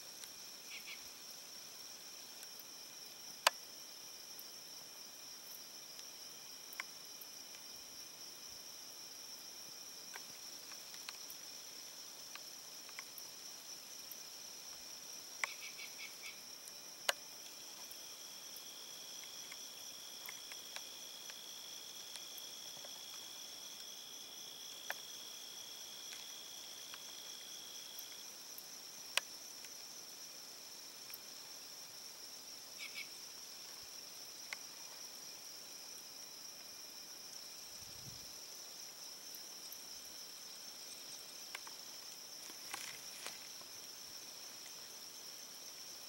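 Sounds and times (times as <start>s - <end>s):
high-pitched insect chorus: 0.0s - 46.0s
lower insect trill: 0.0s - 46.0s.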